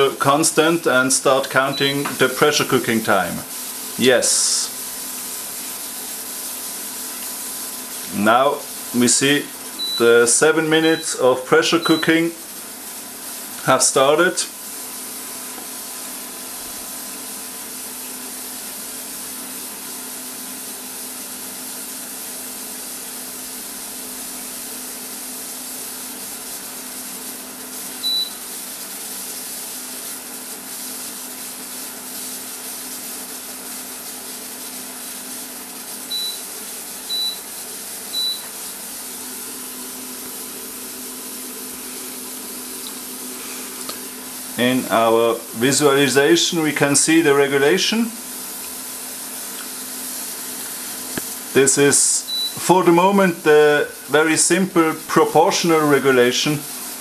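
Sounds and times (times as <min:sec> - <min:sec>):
faint machine hum: 0:00.0 - 0:57.0
pressure cooker hissing: 0:00.0 - 0:57.0
short high beeps: 0:09.8 - 0:10.1, 0:11.8 - 0:12.1, 0:28.0 - 0:28.4, 0:36.1 - 0:36.5, 0:37.1 - 0:37.4, 0:38.1 - 0:38.5, 0:52.3 - 0:52.6.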